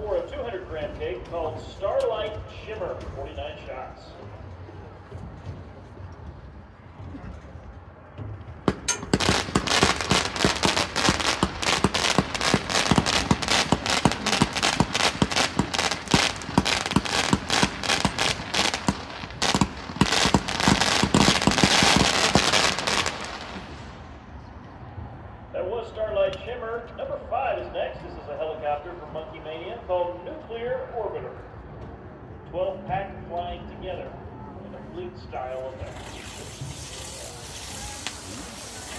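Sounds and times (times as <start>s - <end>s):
firework crackling pops: 8.7s - 23.9s, 35.8s - 38.9s.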